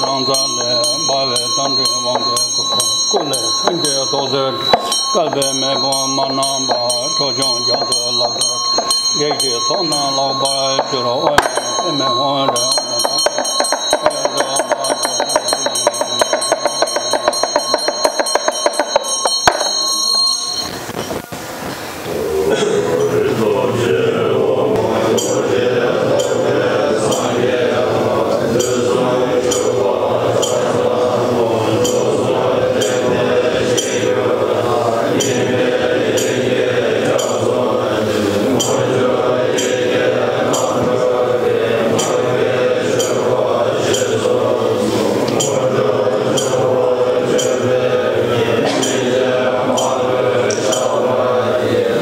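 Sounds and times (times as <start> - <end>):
monks chanting in unison: 0.0 - 20.2, 22.0 - 52.0
hand bell ringing: 0.0 - 21.2, 25.2 - 25.5, 28.6 - 31.2, 31.8 - 36.5, 38.5 - 40.9, 41.9 - 44.2
high metallic clinks: 0.0 - 21.2.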